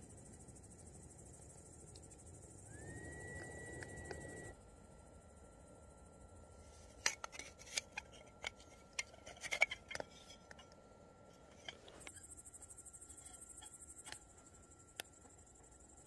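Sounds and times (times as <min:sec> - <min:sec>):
crickets chirping: 0:00.0 - 0:16.0
hard objects clicking and clinking: 0:07.0 - 0:10.8.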